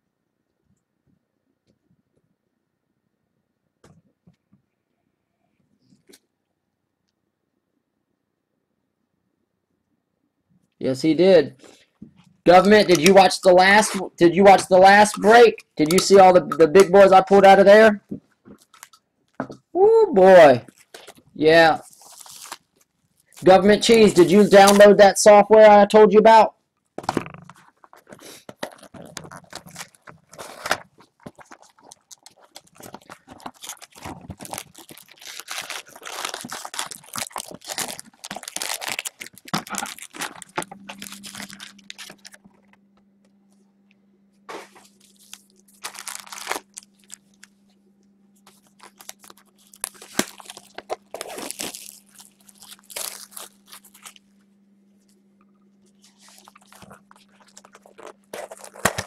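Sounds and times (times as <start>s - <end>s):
low steady hum: 6.7s - 59.0s
plastic wrapping crinkling and tearing: 12.5s - 17.7s, 18.4s - 19.0s, 20.6s - 25.2s, 27.2s - 42.7s, 44.5s - 47.5s, 48.4s - 54.2s, 56.0s - 59.0s.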